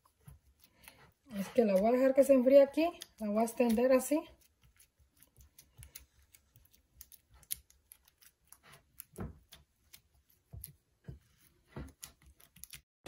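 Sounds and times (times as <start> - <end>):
spatula scraping dough in bowl: 0.0 - 4.9.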